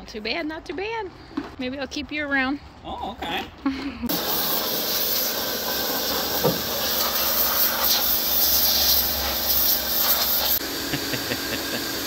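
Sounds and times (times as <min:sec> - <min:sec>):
pressure washer spray hissing: 0:04.1 - 0:12.0
pump motor humming: 0:04.1 - 0:12.0.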